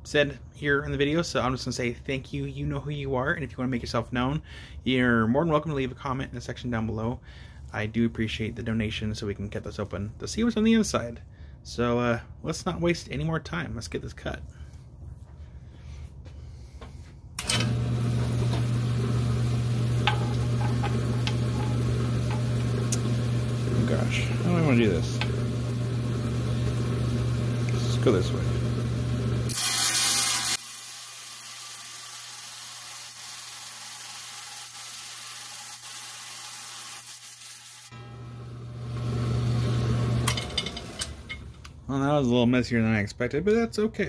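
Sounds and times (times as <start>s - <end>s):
trim saw motor humming: 17.4s - 31.0s, 31.7s - 41.6s
saw blade cutting stone: 29.5s - 30.6s.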